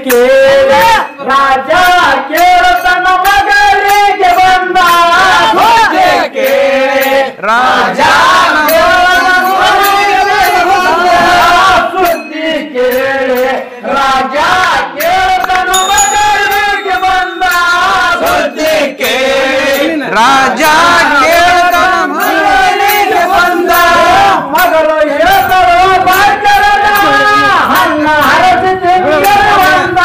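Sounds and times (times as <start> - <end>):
men chanting a folk song: 0.0 - 30.0
sharp percussive beats: 0.0 - 30.0.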